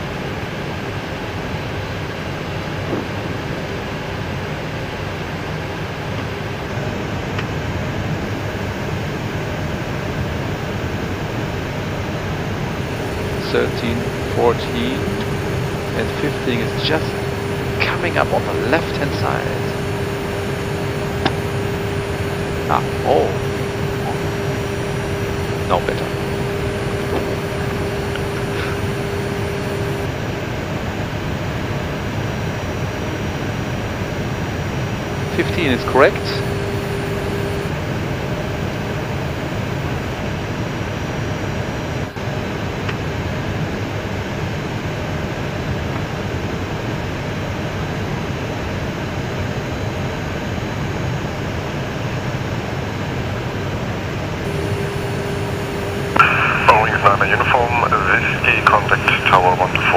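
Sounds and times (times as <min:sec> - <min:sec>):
aircraft engines and ventilation: 0:00.0 - 0:59.9
steady hum: 0:00.0 - 0:59.9
faint steady tone: 0:12.7 - 0:30.8, 0:34.3 - 0:38.3, 0:54.4 - 0:59.9.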